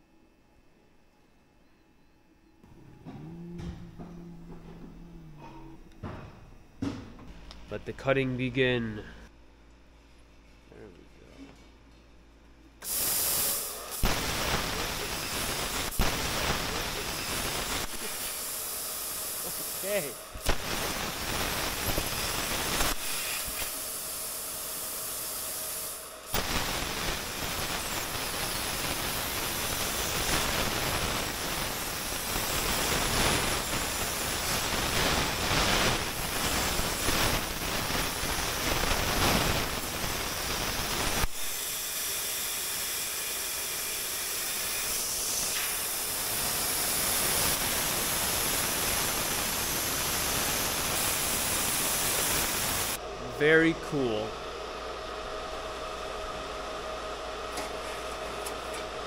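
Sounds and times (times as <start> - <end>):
plasma cutter hissing: 12.8 - 53.0.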